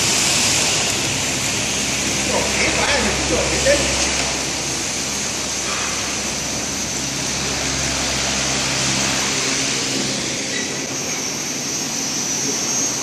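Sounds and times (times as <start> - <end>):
industrial fryer machine noise: 0.0 - 13.0
thin high whine: 0.0 - 13.0.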